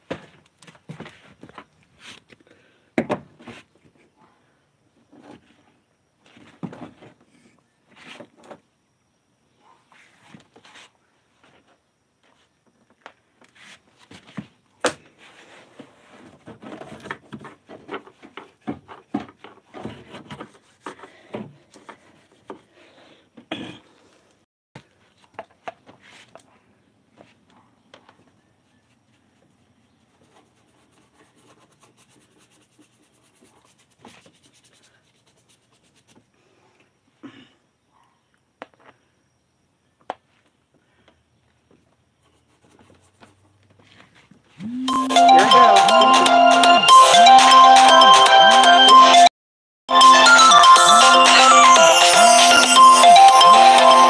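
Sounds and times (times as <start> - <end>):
phone rubbing against clothing: 29.9 - 36.3.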